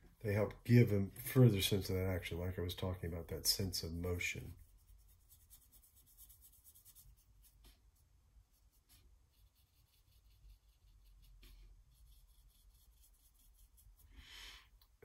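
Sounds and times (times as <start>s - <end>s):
paintbrush strokes on paper: 3.1s - 14.7s.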